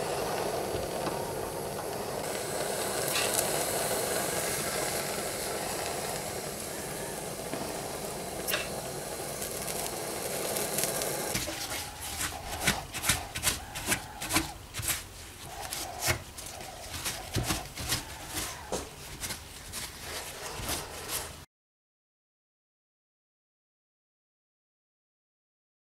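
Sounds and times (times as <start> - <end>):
gas soldering torch hissing: 0.0 - 21.4.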